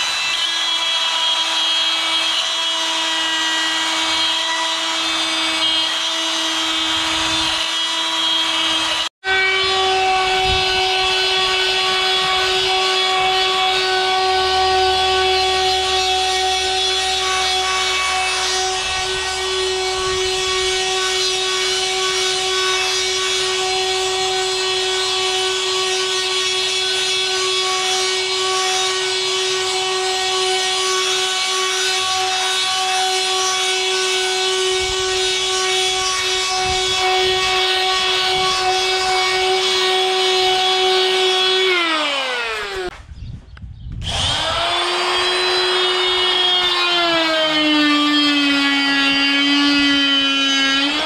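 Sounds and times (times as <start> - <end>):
oscillating multi-tool buzzing: 44.0 - 51.0.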